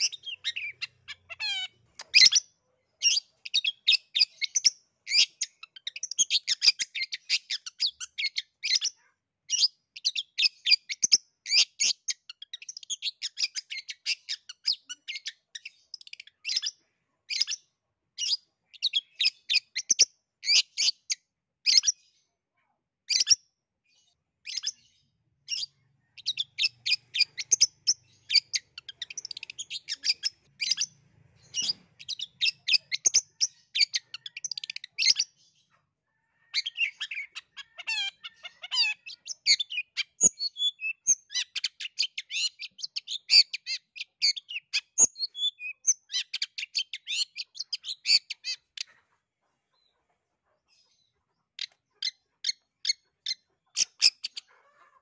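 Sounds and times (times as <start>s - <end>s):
bird singing chattering song: 0.0s - 22.2s, 23.0s - 49.0s, 50.7s - 54.5s.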